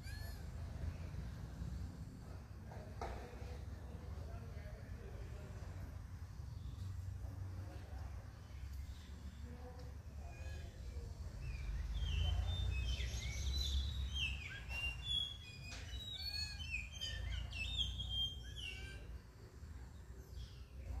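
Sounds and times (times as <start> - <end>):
small birds chirping: 0.0 - 21.0.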